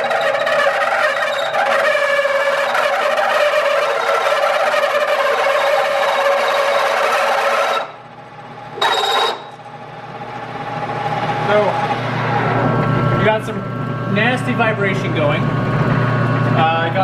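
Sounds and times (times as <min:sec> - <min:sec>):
metal-on-metal squeal: 0:00.0 - 0:07.9, 0:08.8 - 0:09.5.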